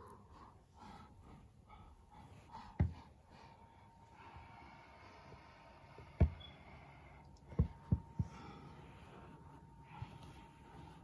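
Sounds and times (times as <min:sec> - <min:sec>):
dull thumps on carpet: 0:02.7 - 0:03.1, 0:07.5 - 0:08.4.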